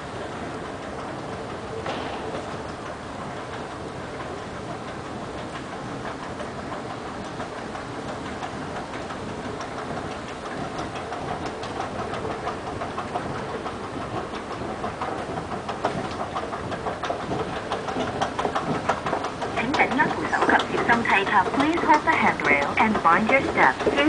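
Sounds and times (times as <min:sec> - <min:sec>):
moving walkway hum: 0:00.0 - 0:24.0
walkway treads clicking: 0:00.0 - 0:24.0.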